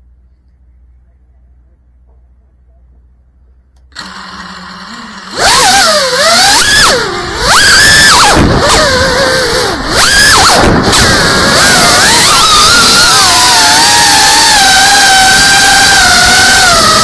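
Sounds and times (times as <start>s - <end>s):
drone motors whining: 3.8s - 17.0s.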